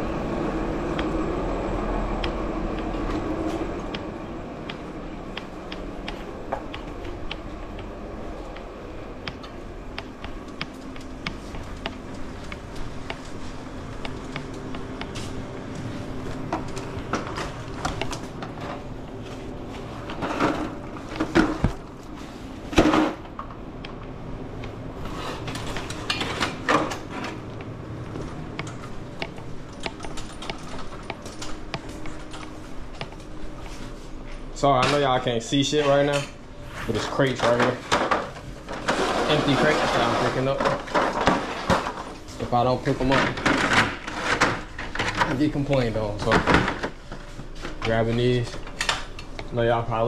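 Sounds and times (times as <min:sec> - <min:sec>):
steady low hum: 0:00.0 - 0:50.0
crates knocking and clattering: 0:20.1 - 0:21.8.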